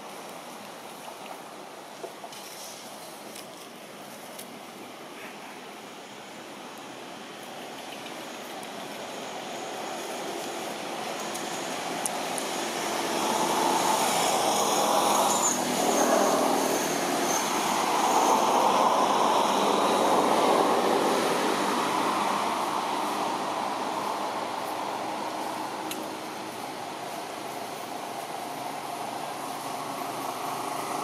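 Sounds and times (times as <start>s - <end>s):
distant engine passing by: 9.0s - 31.0s.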